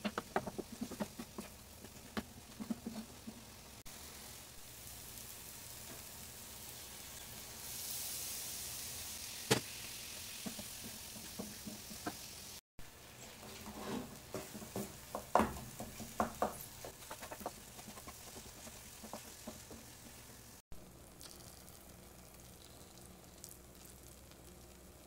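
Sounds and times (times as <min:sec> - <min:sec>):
wooden spatula scraping pan: 0:00.0 - 0:03.6, 0:13.2 - 0:20.2
food sizzling: 0:00.0 - 0:25.0.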